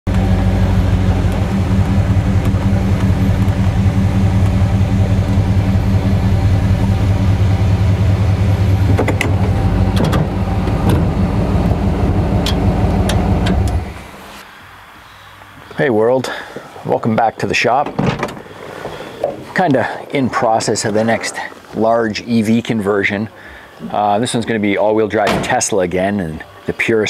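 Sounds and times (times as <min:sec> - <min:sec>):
car engine low rumble: 0:00.1 - 0:14.4.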